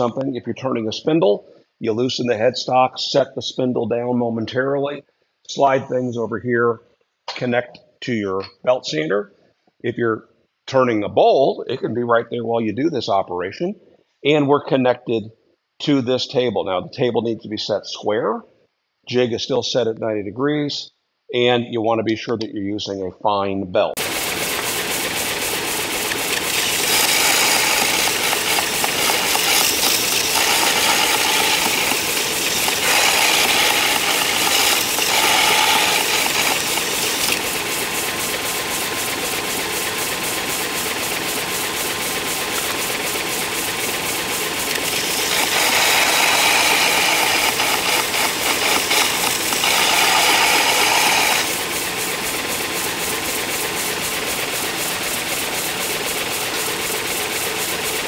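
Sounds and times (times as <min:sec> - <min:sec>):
belt sander running: 0:24.0 - 0:58.0
chisel grinding on belt: 0:26.1 - 0:37.6, 0:44.7 - 0:51.6.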